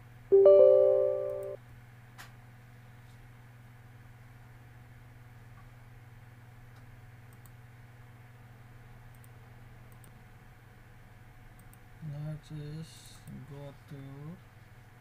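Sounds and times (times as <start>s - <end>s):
low electrical hum: 0.0s - 15.0s
computer mouse clicking: 7.3s - 7.6s, 9.1s - 9.3s, 9.9s - 10.2s.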